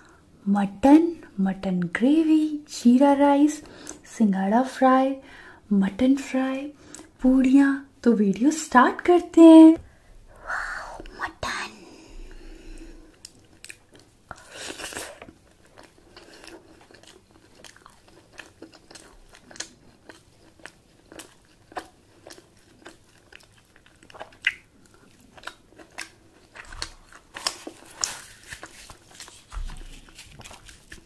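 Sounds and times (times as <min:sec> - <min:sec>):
person eating and crunching: 0:12.3 - 0:31.0.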